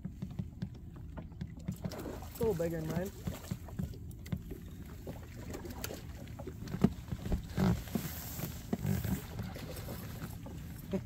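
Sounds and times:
knocks and thumps on metal boat: 0:00.0 - 0:11.0.

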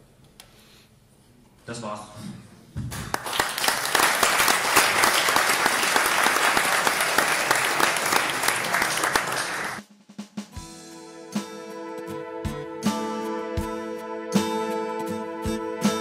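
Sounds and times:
audience applause: 0:03.1 - 0:09.8
soft music with plucked notes: 0:10.6 - 0:16.0.

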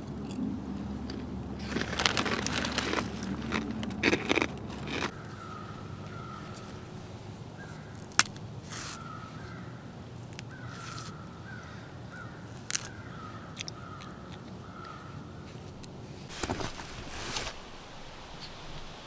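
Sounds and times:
outdoor hush: 0:00.0 - 0:19.0
crows cawing: 0:05.1 - 0:06.9, 0:07.6 - 0:08.1, 0:08.8 - 0:09.9, 0:10.5 - 0:15.2
banana peel snapping: 0:07.9 - 0:09.1, 0:12.6 - 0:14.2.

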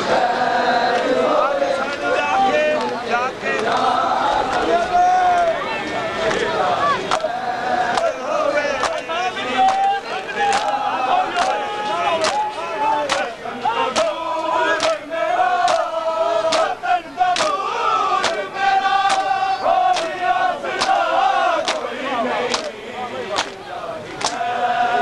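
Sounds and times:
crowd of men chanting: 0:00.0 - 0:25.0
hands slapping chests: 0:10.5 - 0:10.8, 0:11.4 - 0:11.6, 0:12.2 - 0:12.5, 0:13.1 - 0:13.3, 0:14.8 - 0:15.0, 0:15.6 - 0:15.9, 0:16.5 - 0:16.7, 0:17.4 - 0:17.6, 0:18.2 - 0:20.2, 0:20.8 - 0:21.0, 0:21.6 - 0:21.9, 0:22.5 - 0:22.8, 0:23.4 - 0:23.6, 0:24.2 - 0:24.4.

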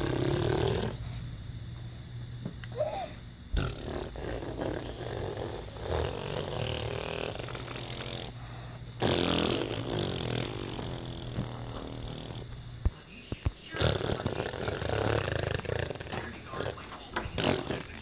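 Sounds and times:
person making fake fart noises: 0:00.0 - 0:01.0, 0:03.5 - 0:08.4, 0:09.0 - 0:12.5, 0:13.8 - 0:16.8, 0:17.4 - 0:18.0.

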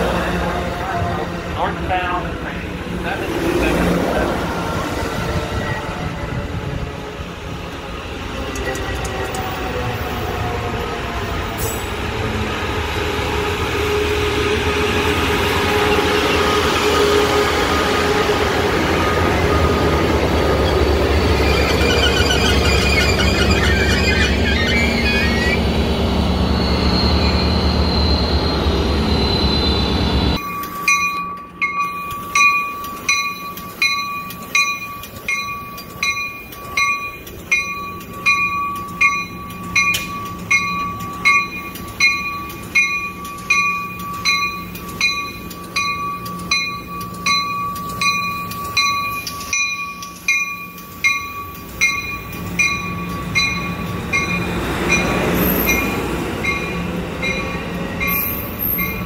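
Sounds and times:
train passing with rumble: 0:00.0 - 0:59.0
bell ringing: 0:30.4 - 0:59.0.

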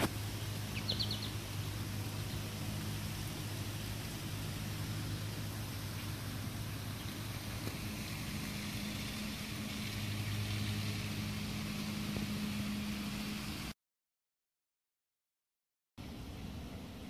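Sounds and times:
faint hiss: 0:00.0 - 0:13.8
low machine hum: 0:00.0 - 0:13.8, 0:16.0 - 0:17.0.

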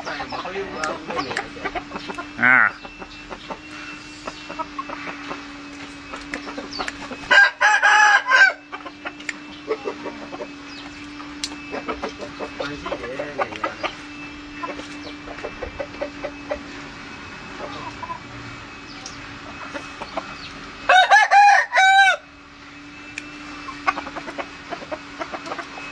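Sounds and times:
chickens clucking: 0:00.0 - 0:22.2, 0:23.1 - 0:25.9
rooster crowing: 0:07.2 - 0:08.8, 0:20.8 - 0:22.4.

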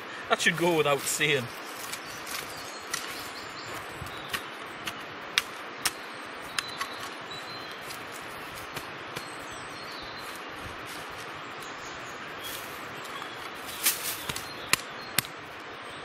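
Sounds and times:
steady hiss: 0:00.0 - 0:15.8
faint birdsong: 0:00.0 - 0:16.0
shovel chopping and scraping soil: 0:01.2 - 0:09.5, 0:12.4 - 0:15.4.

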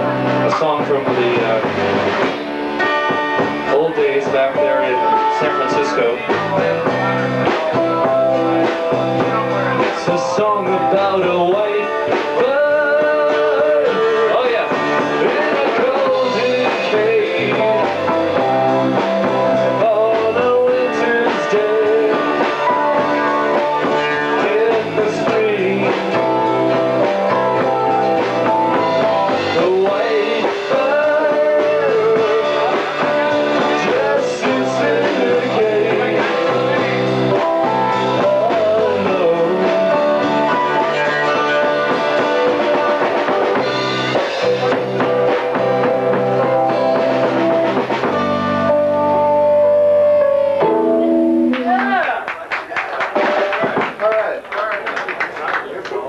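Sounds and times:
electric guitars: 0:00.0 - 0:52.4
drum kit: 0:00.0 - 0:55.3
person singing: 0:03.7 - 0:47.3.

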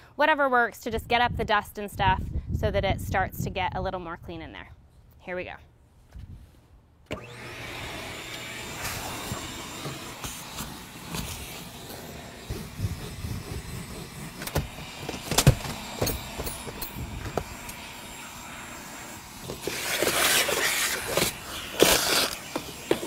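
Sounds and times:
shop vacuum running: 0:07.1 - 0:23.0.

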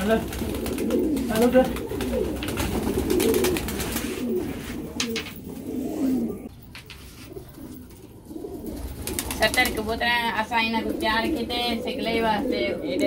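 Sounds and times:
pigeon wing claps: 0:00.0 - 0:04.2, 0:05.0 - 0:05.4
pigeons cooing: 0:00.0 - 0:13.0.

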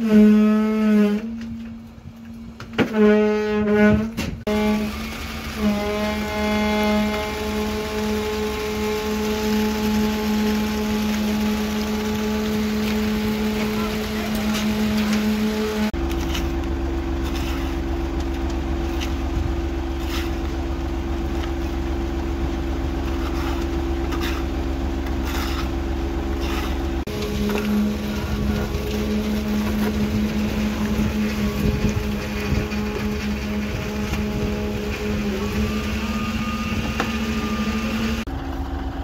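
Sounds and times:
concrete mixer engine drone: 0:00.0 - 0:39.0
machine drone: 0:03.8 - 0:39.0
scoop and trowel scraping concrete: 0:05.5 - 0:16.6, 0:17.2 - 0:21.8, 0:23.0 - 0:38.2.

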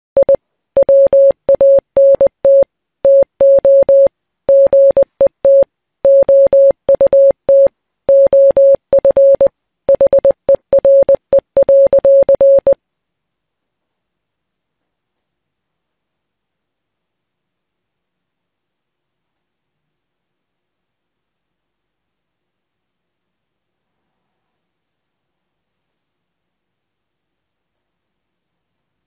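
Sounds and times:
morse code beeping: 0:00.2 - 0:12.8.

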